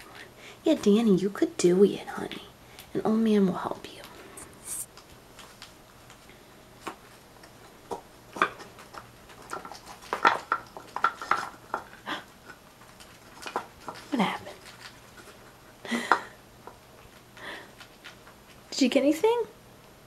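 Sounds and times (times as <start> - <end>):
wooden blocks clicking and knocking: 7.9 - 14.1.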